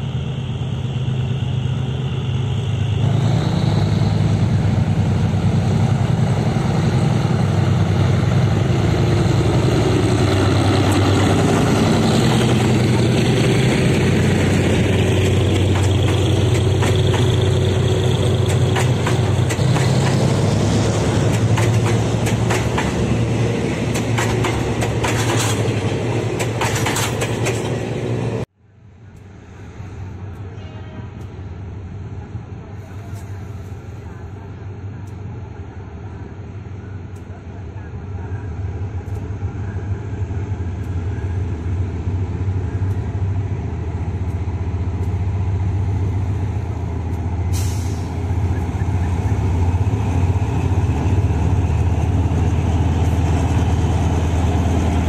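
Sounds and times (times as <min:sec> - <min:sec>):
diesel locomotive engine: 0:00.0 - 0:55.0
train wheels clicking on rail joints: 0:03.6 - 0:28.4, 0:38.9 - 0:55.0.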